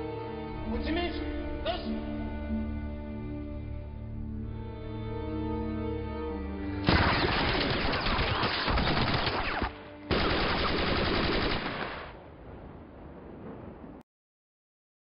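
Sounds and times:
rifle and machine-gun fire: 6.9s - 12.2s.

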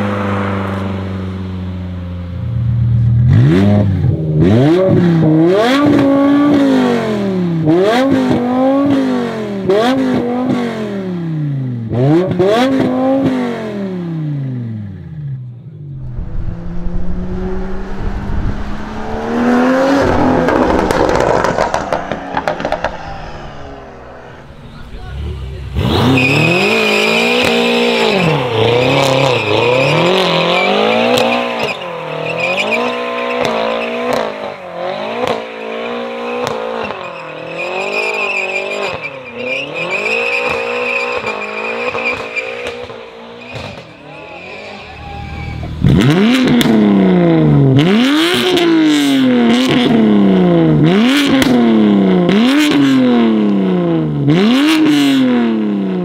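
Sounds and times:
car engine revving: 0.0s - 56.0s
car engine free-revving blips: 16.0s - 44.0s, 45.2s - 56.0s
tyre squeal: 25.9s - 34.3s, 35.3s - 42.7s, 43.4s - 45.8s.

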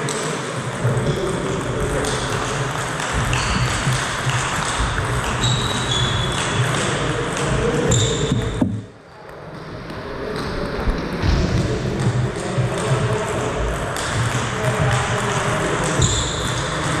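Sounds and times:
steady background noise: 0.0s - 17.0s
ball pinging on table: 1.1s - 8.9s.

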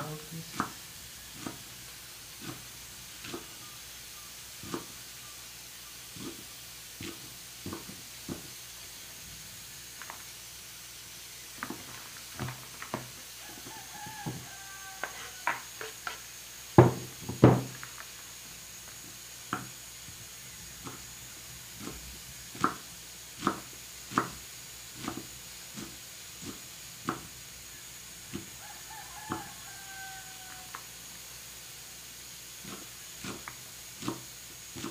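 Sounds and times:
rooster crowing: 13.3s - 16.2s, 28.3s - 31.0s
knife chopping on wooden block: 16.8s - 17.7s.

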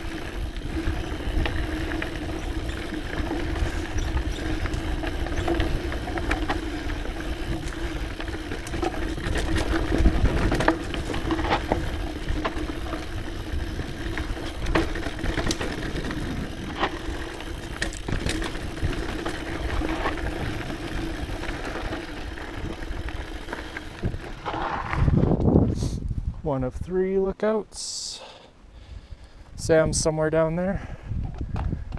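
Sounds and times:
bike chain clicks and rattles: 0.0s - 25.4s
tyre and wind noise: 0.0s - 26.9s, 28.9s - 31.9s.

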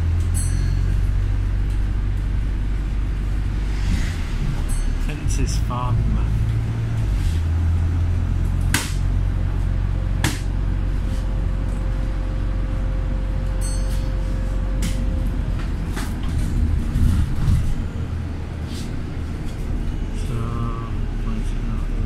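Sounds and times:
car cabin road and engine rumble: 0.0s - 22.0s
sharp knocks: 8.7s - 9.1s, 10.2s - 10.6s.

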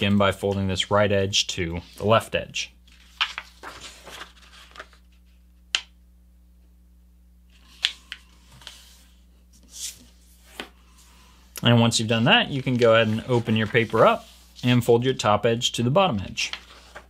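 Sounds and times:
paper rustling and sliding: 2.9s - 5.4s, 7.5s - 15.0s, 16.2s - 17.0s
soft brushes on paper: 12.1s - 14.8s.

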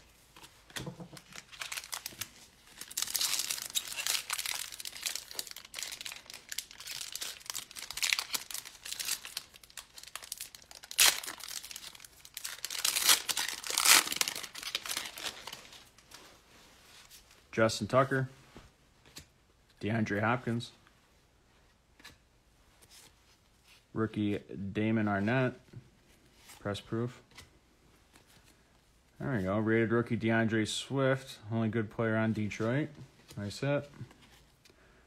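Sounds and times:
foil wrapper crinkling and tearing: 1.1s - 16.0s.

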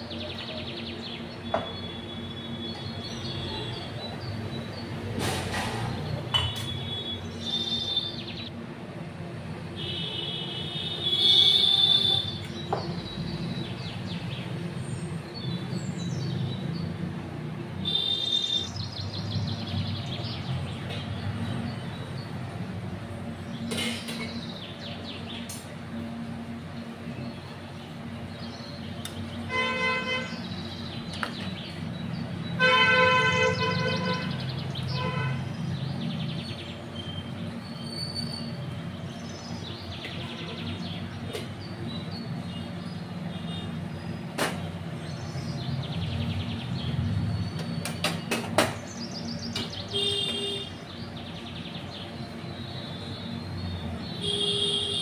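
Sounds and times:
horn honking: 9.8s - 12.4s, 29.5s - 30.4s, 32.6s - 35.5s, 49.9s - 50.8s, 54.2s - 55.0s.

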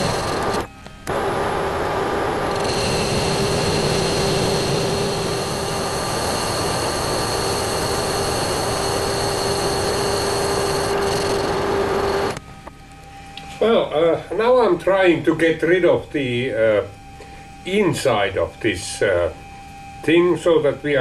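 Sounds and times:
metal lathe cutting with ringing tone: 0.0s - 12.4s.

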